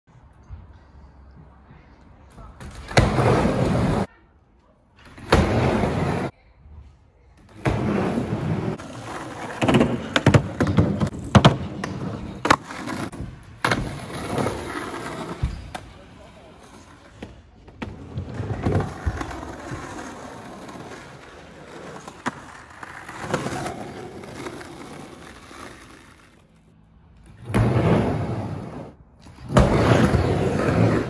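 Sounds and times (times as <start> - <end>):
skateboard wheels rolling on ramp: 2.8 - 4.1, 5.2 - 6.3, 7.5 - 15.8, 17.7 - 31.0.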